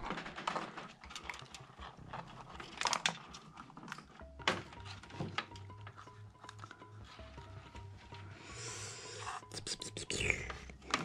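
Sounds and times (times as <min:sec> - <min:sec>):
cables rustling: 0:00.0 - 0:08.4.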